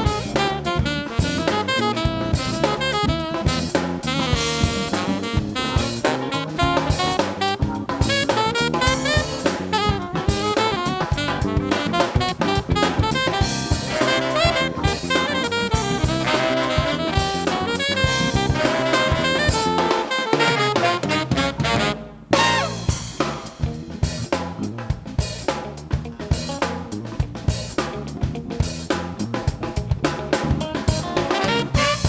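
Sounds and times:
saxophone horn section: 0:00.0 - 0:23.2, 0:31.0 - 0:32.0
bass: 0:00.0 - 0:32.0
drum kit: 0:00.0 - 0:32.0
piano: 0:00.0 - 0:32.0.

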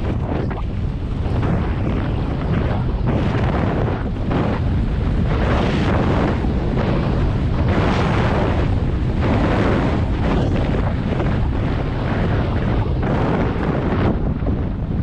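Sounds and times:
wind buffeting the microphone: 0:00.0 - 0:15.0.

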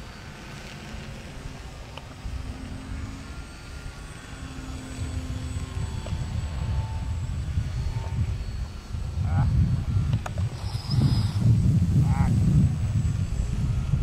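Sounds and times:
model plane motors droning: 0:00.0 - 0:14.0
wind rumble on microphone: 0:00.0 - 0:14.0.

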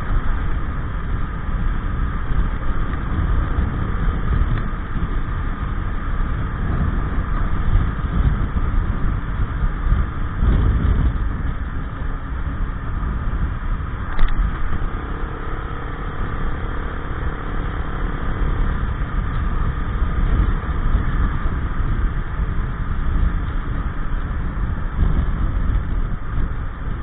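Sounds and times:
scooter engine running: 0:00.0 - 0:27.0
wind rumble on microphone: 0:00.0 - 0:27.0
short click: 0:14.1 - 0:14.4.

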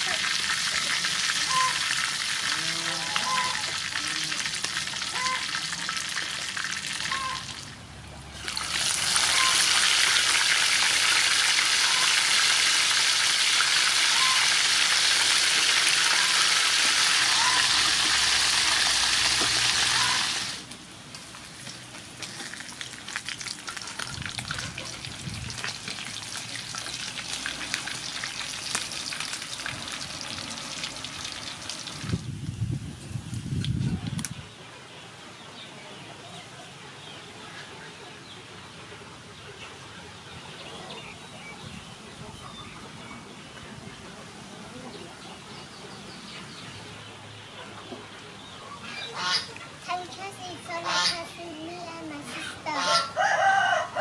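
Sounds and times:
fish frying in hot oil: 0:00.0 - 0:02.5, 0:08.4 - 0:32.2.

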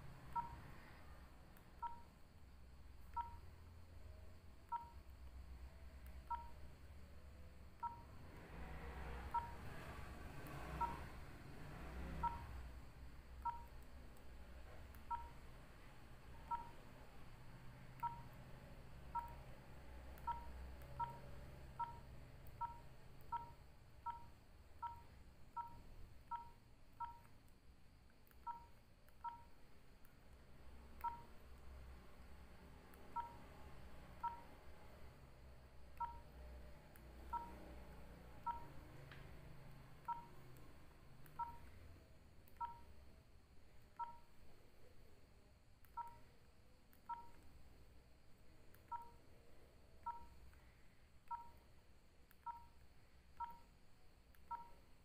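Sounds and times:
phone keypad beeps: 0:00.2 - 0:02.2, 0:03.0 - 0:03.5, 0:04.6 - 0:05.1, 0:06.0 - 0:06.8, 0:07.7 - 0:13.9, 0:14.6 - 0:27.4, 0:28.3 - 0:29.6, 0:30.8 - 0:31.5, 0:32.9 - 0:35.2, 0:35.9 - 0:43.0, 0:43.9 - 0:44.4, 0:45.8 - 0:46.4, 0:47.0 - 0:47.5, 0:48.7 - 0:51.7, 0:52.3 - 0:54.9.

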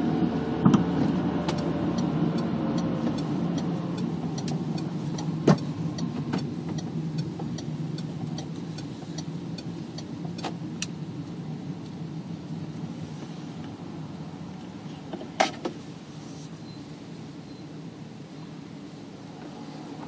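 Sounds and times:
vehicle engine humming: 0:00.0 - 0:20.0
light ticks: 0:01.5 - 0:12.0.

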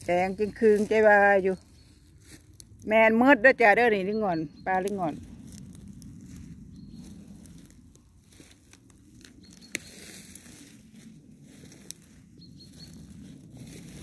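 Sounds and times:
footsteps through shrubs and twigs: 0:00.0 - 0:02.9, 0:04.6 - 0:14.0
low microphone rumble: 0:00.0 - 0:09.5
twig snapping: 0:04.8 - 0:10.7, 0:11.7 - 0:12.1.

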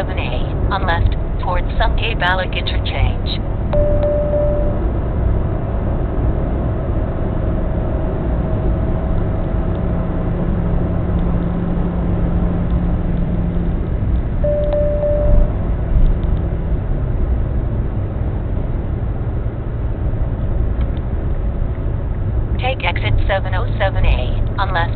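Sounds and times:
car road and engine rumble: 0:00.0 - 0:24.9
short beep: 0:03.7 - 0:04.8, 0:14.4 - 0:15.5.

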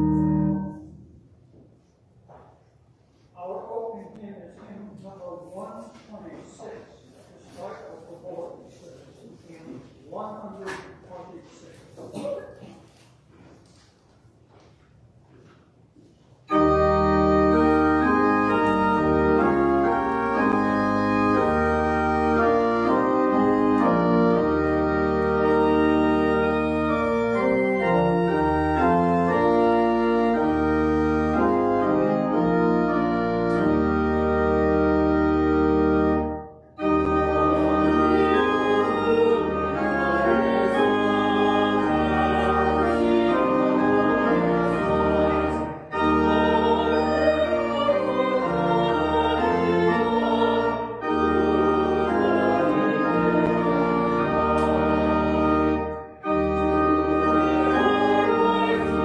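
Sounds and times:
church organ chords: 0:00.0 - 0:01.2, 0:16.5 - 0:59.0.

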